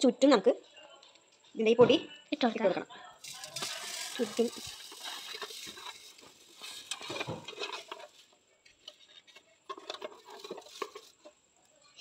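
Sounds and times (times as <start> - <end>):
seeds rustling against metal tin: 3.2 - 11.5.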